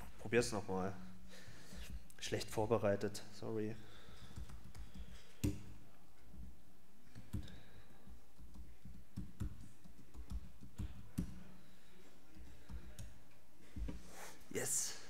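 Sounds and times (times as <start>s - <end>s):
laptop keyboard keystrokes: 8.3s - 11.4s.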